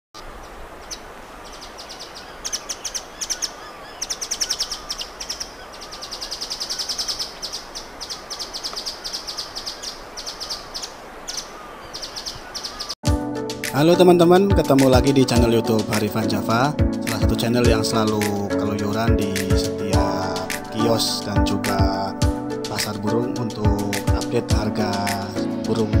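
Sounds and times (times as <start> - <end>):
forest ambience hiss: 0.2 - 13.0
bird calling rapid sharp notes: 0.8 - 13.0.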